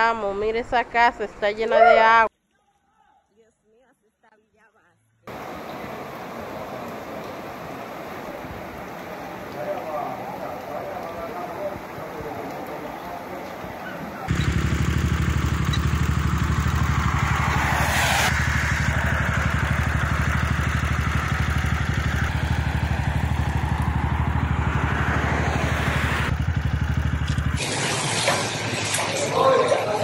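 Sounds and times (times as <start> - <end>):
rushing noise: 5.3 - 29.0
vehicle engine running: 5.3 - 30.0.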